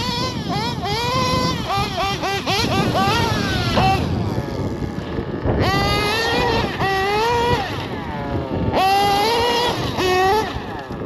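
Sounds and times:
model car engine revving: 0.0s - 11.0s.

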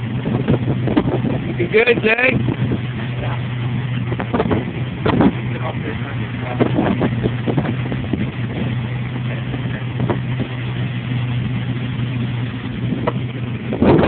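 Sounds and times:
boat engines running: 0.0s - 14.0s.

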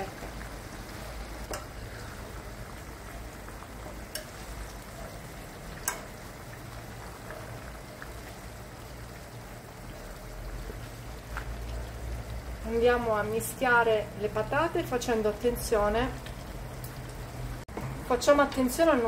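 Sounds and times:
vegetables sizzling in frying oil: 0.0s - 19.0s
utensil clicking against pan: 4.1s - 4.3s, 5.8s - 6.1s.

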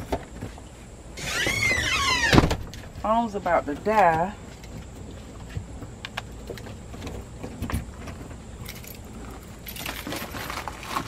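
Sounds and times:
keys jangling: 8.6s - 10.5s.

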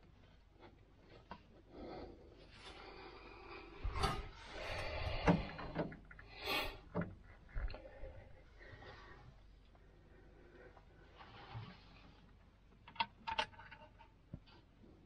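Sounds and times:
rubbing and scraping among hoses: 11.0s - 12.5s.

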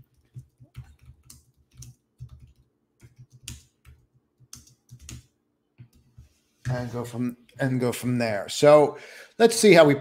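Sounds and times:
keyboard typing clicks: 0.0s - 6.1s.

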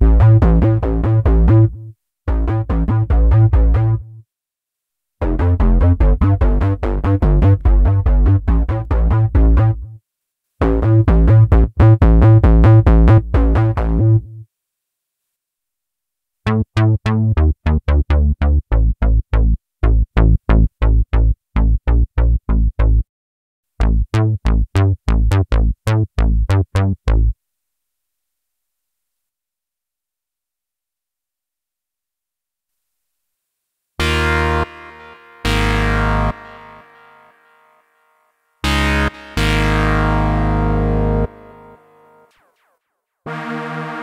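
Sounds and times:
synthesizer bass notes: 0.0s - 4.2s, 5.2s - 9.9s, 10.6s - 14.4s, 16.5s - 23.1s, 23.8s - 27.3s, 34.0s - 37.5s, 38.6s - 42.7s, 43.3s - 44.0s.

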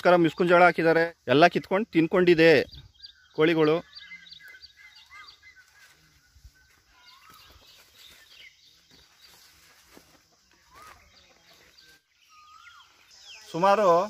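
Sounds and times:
high chick chirps: 2.8s - 8.2s
chickens calling softly: 2.8s - 13.6s.

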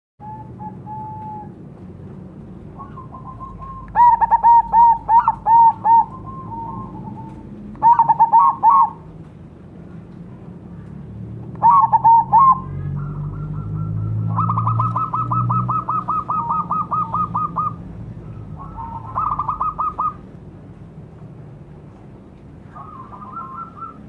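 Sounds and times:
dove cooing song: 0.2s - 1.6s, 2.7s - 9.2s, 11.6s - 20.2s, 22.7s - 24.0s.

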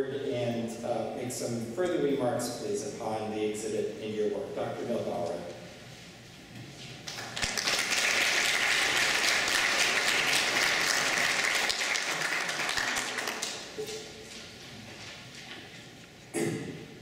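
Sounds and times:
audience applauding: 7.1s - 13.8s.

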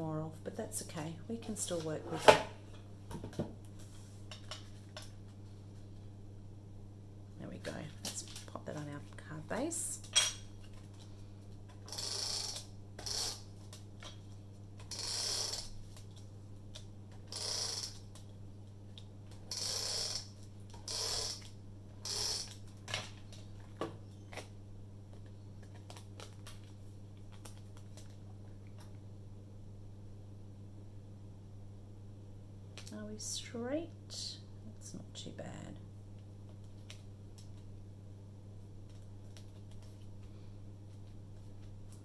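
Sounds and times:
tape runner strokes: 11.9s - 13.8s, 14.8s - 16.2s.

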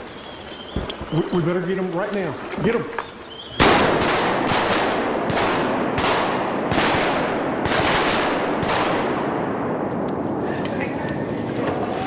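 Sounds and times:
shotgun blasts with echo: 3.6s - 10.1s.

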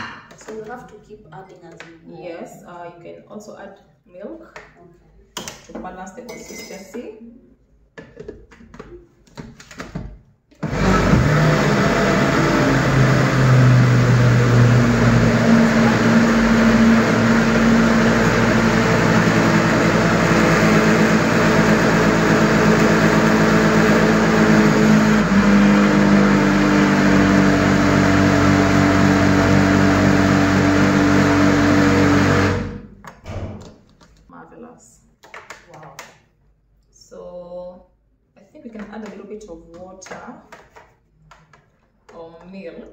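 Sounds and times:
blender motor running: 10.6s - 32.9s.

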